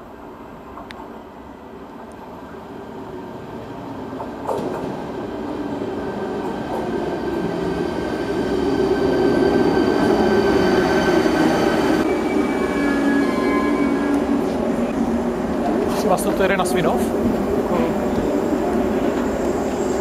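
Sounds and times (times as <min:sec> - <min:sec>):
electric train pulling in: 0:00.1 - 0:20.0.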